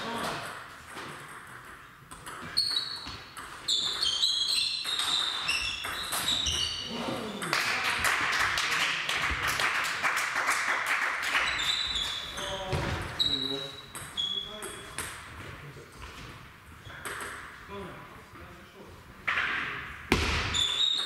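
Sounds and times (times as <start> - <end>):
table tennis balls clicking: 0.4 - 6.6.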